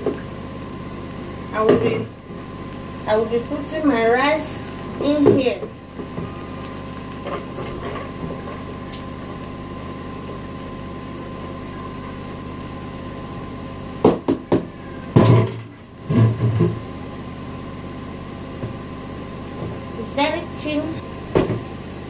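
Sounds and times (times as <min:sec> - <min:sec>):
steady kitchen hum: 0:00.0 - 0:22.0.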